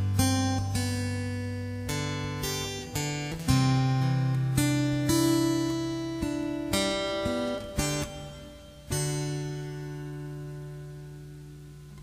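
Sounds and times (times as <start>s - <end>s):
acoustic guitar playing: 0.0s - 12.0s.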